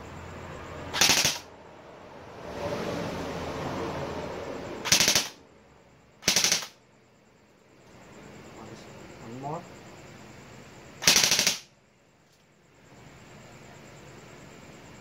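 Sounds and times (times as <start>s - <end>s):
airsoft rifle bursts: 0.9s - 1.5s, 4.9s - 5.4s, 6.2s - 6.8s, 11.0s - 11.7s.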